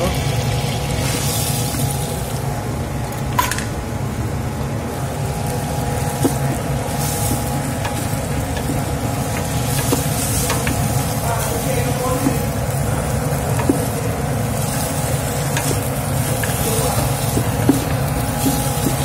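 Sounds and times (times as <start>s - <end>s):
steady low hum: 0.0s - 19.0s
noodles stirred in a metal wok: 5.7s - 19.0s
utensil clicking against pan: 7.3s - 11.0s, 12.2s - 14.0s, 14.8s - 19.0s.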